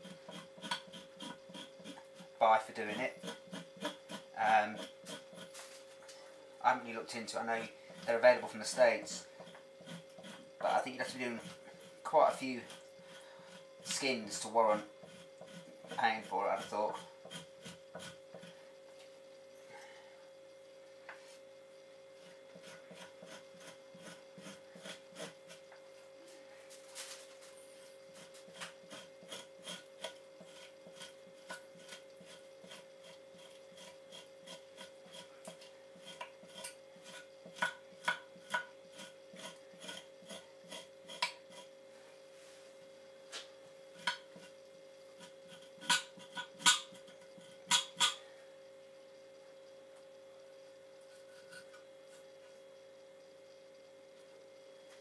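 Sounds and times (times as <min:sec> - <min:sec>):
hand tool scraping hide: 0:00.0 - 0:05.9, 0:06.9 - 0:18.6, 0:22.5 - 0:25.8, 0:28.1 - 0:41.7, 0:44.0 - 0:48.2.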